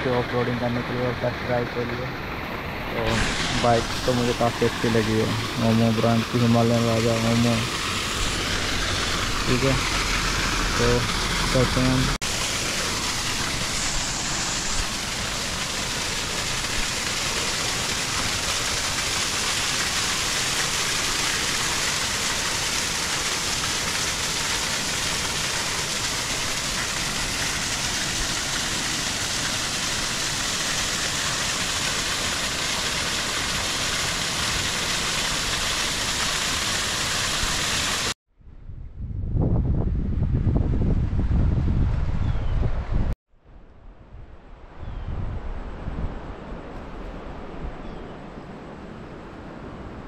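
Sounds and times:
waterfall rushing over rocks: 0.0s - 38.2s.

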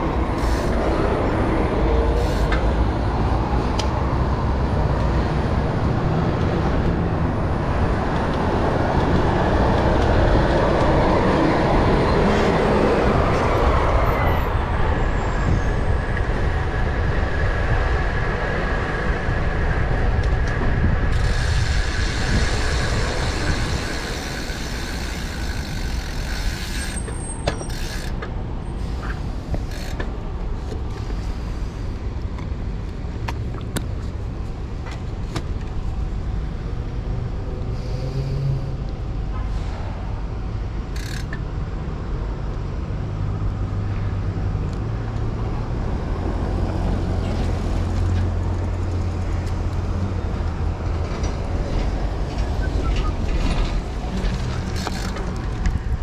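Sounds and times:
road traffic: 0.0s - 56.0s
wind noise on microphone: 3.4s - 26.0s
sharp ticks: 40.9s - 41.4s.

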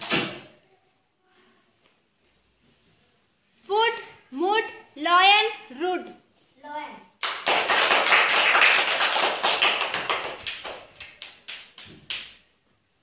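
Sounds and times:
children clapping: 7.2s - 12.4s.

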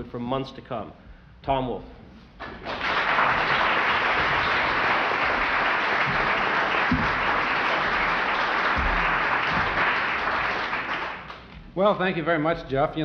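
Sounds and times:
audience applauding: 2.4s - 11.5s.

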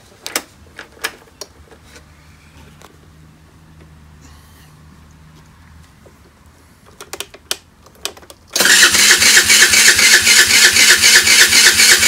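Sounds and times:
scooter starter cranking engine: 8.6s - 12.0s.

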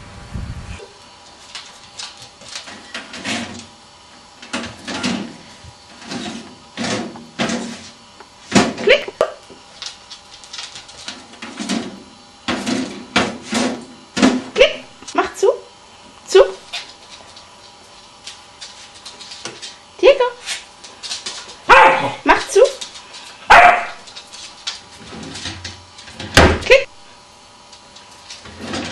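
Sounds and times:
dog claws clicking on wooden floor: 1.3s - 3.0s, 9.7s - 11.2s, 20.8s - 21.7s, 22.4s - 25.0s.

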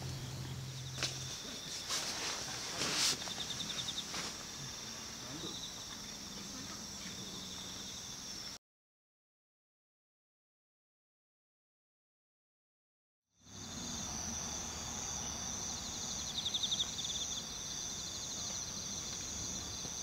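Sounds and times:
rustling: 0.0s - 4.8s
insects chirping: 0.0s - 8.6s, 13.4s - 20.0s.

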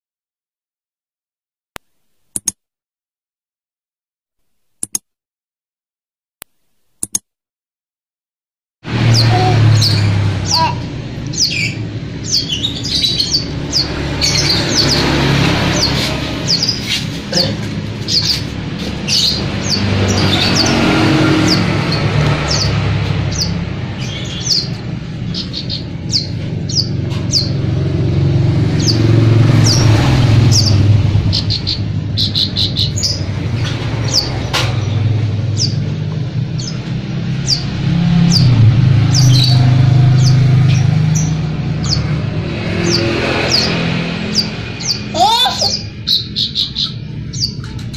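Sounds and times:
traffic engine rumble: 8.8s - 47.9s
songbird chirping: 9.0s - 35.9s, 36.5s - 47.9s.

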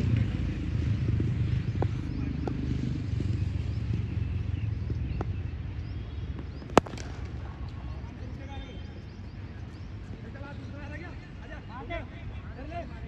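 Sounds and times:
low outdoor rumble: 0.0s - 8.5s
sharp loud crack: 6.7s - 7.6s.

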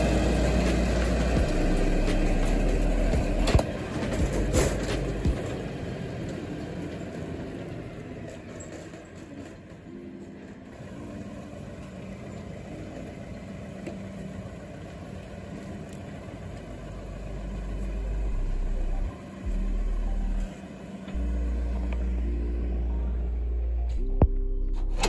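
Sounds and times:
music with deep bass: 0.0s - 5.5s, 16.8s - 25.0s
tractor engine running: 0.0s - 25.0s.

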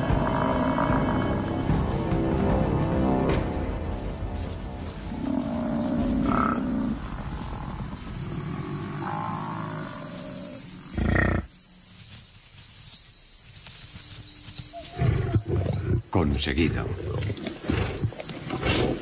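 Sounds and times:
buffalo bellowing: 0.0s - 1.5s, 5.1s - 11.6s
high insect trill: 0.0s - 19.0s
lions growling: 5.2s - 11.5s, 14.8s - 19.0s.

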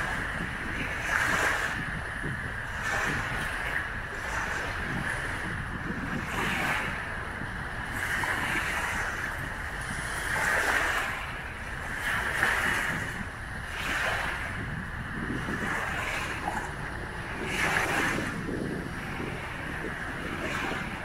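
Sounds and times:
small waves washing on sandy shore: 0.0s - 21.0s.

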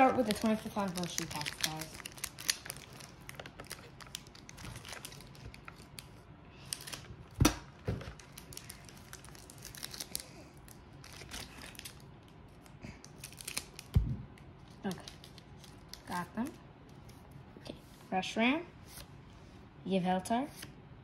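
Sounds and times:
foil wrapper crinkling: 0.1s - 14.0s, 14.6s - 16.6s.

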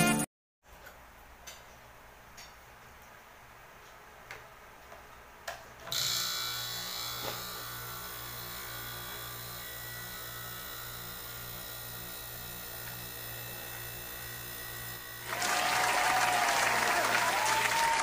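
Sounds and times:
compressor pump humming: 5.8s - 16.1s.

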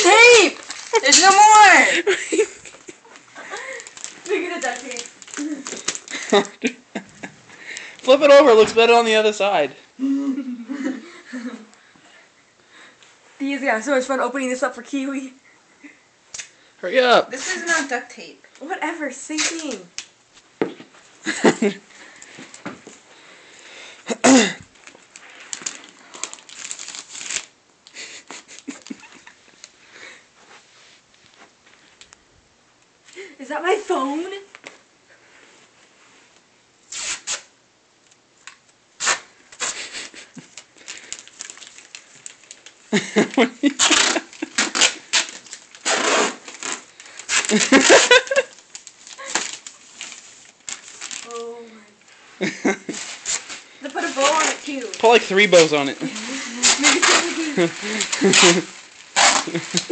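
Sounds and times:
wrapping paper crinkling: 0.0s - 6.8s, 24.7s - 29.8s, 39.0s - 59.9s
tape being pulled and torn: 16.3s - 16.5s, 19.4s - 20.1s, 36.9s - 37.5s, 38.4s - 42.8s, 43.6s - 51.3s, 52.9s - 55.7s, 56.5s - 59.9s.

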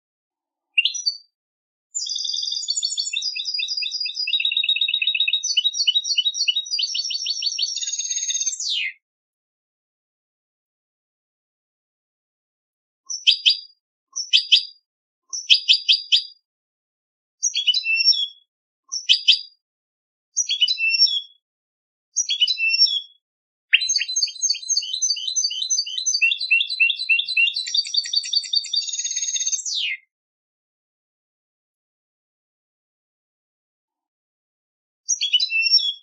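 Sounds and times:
goldfinch song: 0.8s - 1.3s, 2.0s - 9.0s, 13.1s - 16.4s, 17.4s - 19.6s, 20.4s - 21.4s, 22.2s - 30.1s, 35.1s - 36.0s.

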